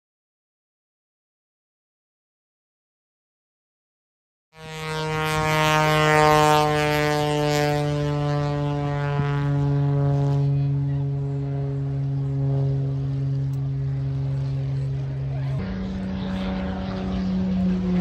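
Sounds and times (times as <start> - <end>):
propeller aircraft drone: 4.6 - 18.0.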